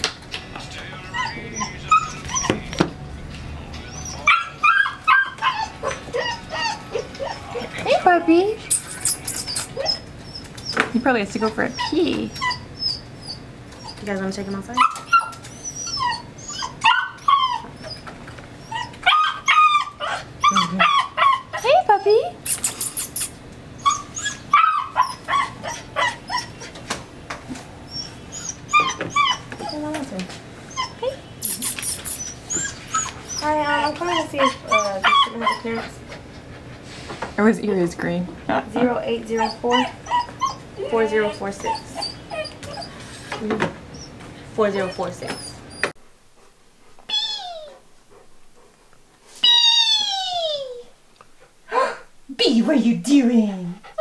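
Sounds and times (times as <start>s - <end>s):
puppy whimpering: 1.0s - 2.9s, 3.8s - 26.8s, 27.8s - 36.8s, 38.8s - 46.0s, 47.1s - 47.9s, 49.4s - 51.0s
puppy barking and yipping: 3.9s - 8.0s, 8.8s - 10.8s, 14.8s - 21.8s, 22.4s - 26.8s, 27.9s - 29.9s, 30.7s - 36.0s.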